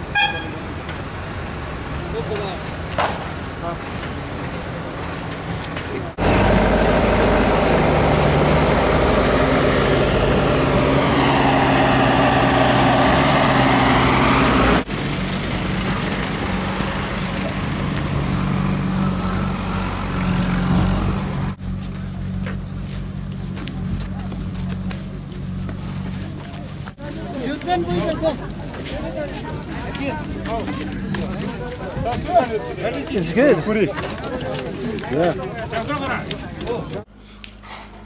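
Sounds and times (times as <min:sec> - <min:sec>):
heavy diesel engine running: 0:06.1 - 0:31.8
quiet engine hum: 0:14.9 - 0:33.1.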